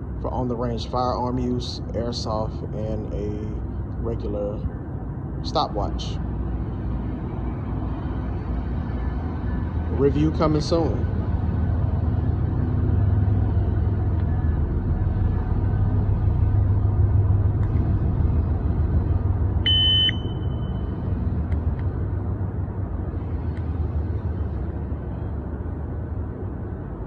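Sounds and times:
low rumble: 0.0s - 27.0s
shot timer beep: 19.7s - 20.9s.

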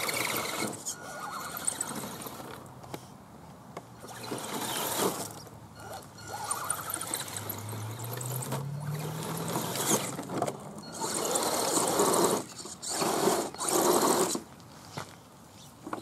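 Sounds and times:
electric motor whining: 4.1s - 14.4s.

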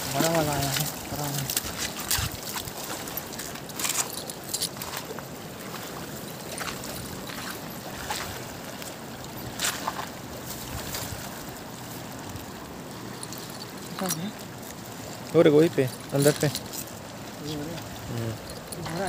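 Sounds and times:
flowing river water: 0.0s - 19.0s.

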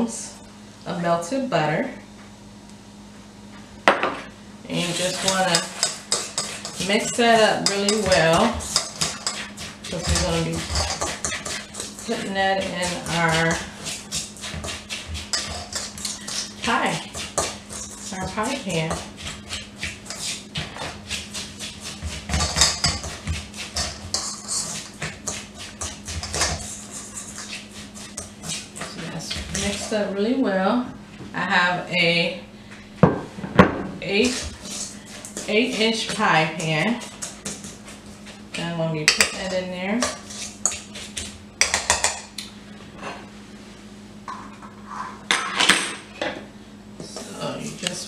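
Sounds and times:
utensil scraping metal bowl: 4.7s - 30.2s, 34.0s - 42.2s.

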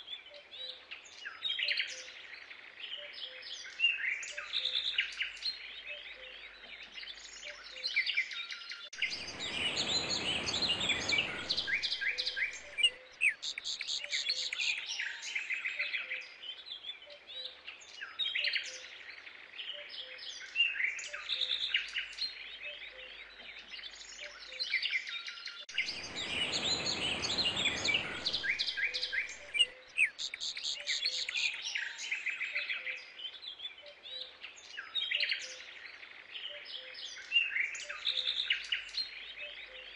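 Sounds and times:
small birds chirping and trilling: 0.0s - 39.9s
rush of noise: 9.0s - 12.8s, 25.7s - 29.6s.

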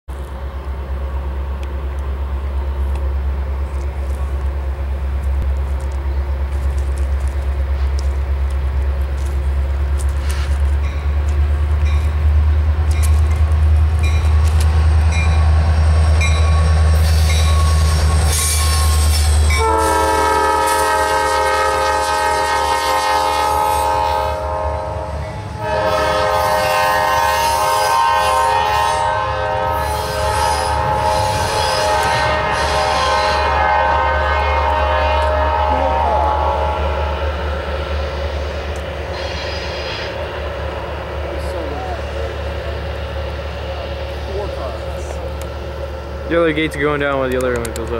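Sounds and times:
diesel locomotive rumble: 0.1s - 47.9s
clicking train wheels: 1.4s - 22.1s, 37.0s - 47.9s
locomotive air horn: 17.0s - 37.2s.

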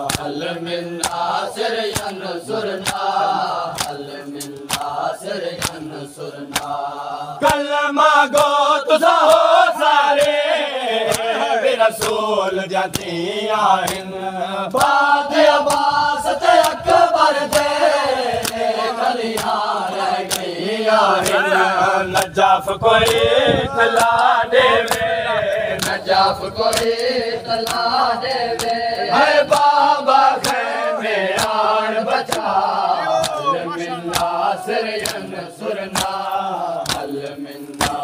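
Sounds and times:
chest-beating slaps: 0.0s - 0.4s, 1.0s - 1.3s, 1.9s - 5.0s, 5.6s - 6.8s, 10.1s - 10.4s, 11.1s - 11.3s, 12.0s - 12.2s, 12.9s - 13.2s, 13.8s - 14.1s, 15.6s - 16.0s, 17.5s - 20.6s, 23.9s - 25.1s, 25.8s - 28.9s, 29.5s - 30.7s, 31.3s - 31.6s, 32.2s - 32.5s, 33.2s - 33.5s, 34.1s - 34.4s, 35.0s - 35.3s, 35.9s - 36.2s, 36.8s - 38.0s
men chanting in unison: 0.0s - 38.0s.

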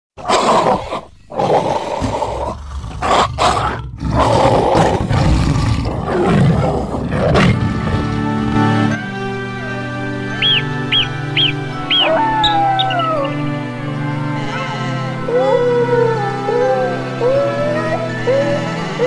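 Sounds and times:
animal roaring: 0.2s - 8.3s
music: 4.1s - 19.0s.

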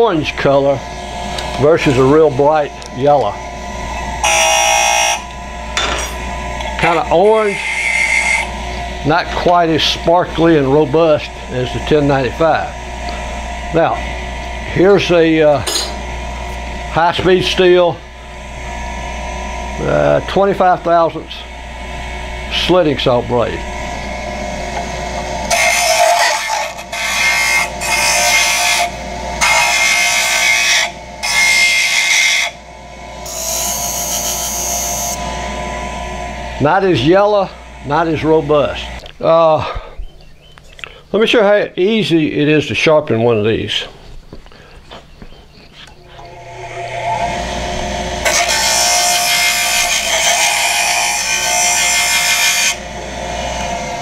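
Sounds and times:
bench grinder humming: 0.0s - 39.8s, 44.2s - 54.0s
steel blade grinding on wheel: 1.3s - 12.6s, 25.4s - 32.6s, 33.2s - 35.2s, 46.2s - 52.8s.

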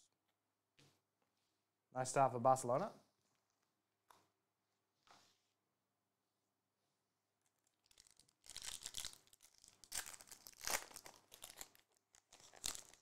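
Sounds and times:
foil wrapper crinkling and tearing: 7.8s - 13.0s.

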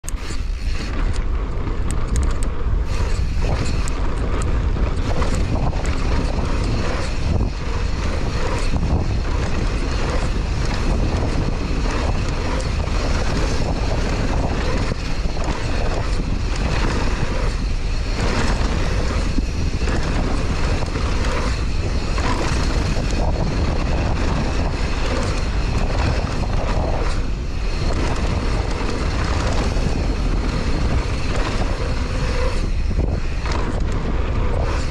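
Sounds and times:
bike rattling and knocking: 0.0s - 34.9s
wind rushing over microphone: 0.0s - 34.9s.

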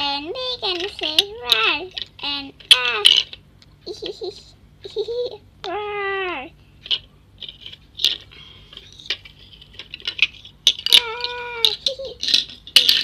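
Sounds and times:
plastic toys clicking on tiled floor: 0.6s - 4.2s, 6.8s - 13.0s
child making monster call: 5.6s - 6.5s, 10.9s - 12.2s.

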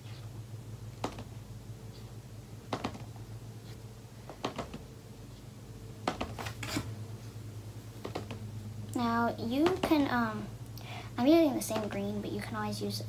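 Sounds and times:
low room hum: 0.0s - 13.0s
painting supplies tapping and knocking: 1.0s - 1.3s, 2.7s - 3.1s, 4.3s - 4.8s, 6.0s - 6.7s.

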